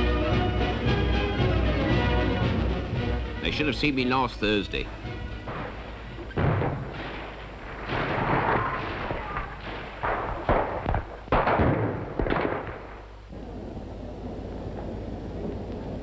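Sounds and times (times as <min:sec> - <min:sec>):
explosions with rumble: 0:05.0 - 0:16.0
gunfire: 0:05.2 - 0:13.4.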